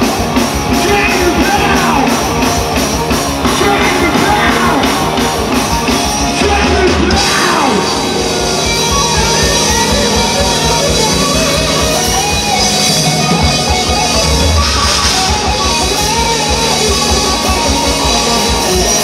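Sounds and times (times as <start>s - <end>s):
rock band playing: 0.0s - 19.0s
man singing: 0.7s - 2.2s, 3.4s - 5.2s, 6.2s - 8.1s.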